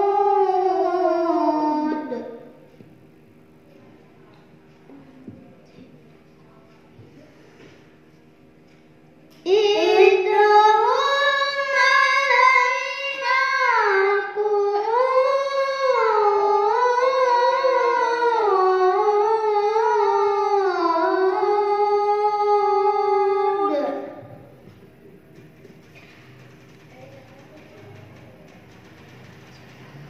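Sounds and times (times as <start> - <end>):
boy chanting recitation: 0.0 - 2.8, 9.4 - 24.7.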